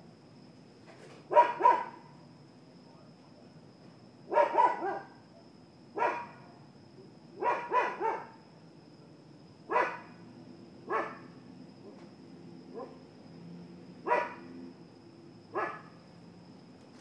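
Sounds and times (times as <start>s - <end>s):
dogs barking: 1.3s - 2.1s, 4.3s - 5.2s, 6.0s - 6.5s, 7.4s - 8.4s, 9.7s - 10.2s, 10.9s - 11.3s, 14.0s - 14.5s, 15.5s - 15.9s.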